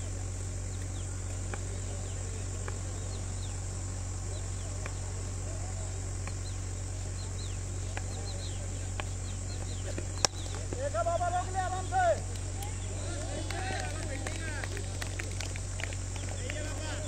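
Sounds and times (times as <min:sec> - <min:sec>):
constant low hum: 0:00.0 - 0:17.0
faint distant voices: 0:00.0 - 0:17.0
night insects trilling: 0:00.0 - 0:17.0.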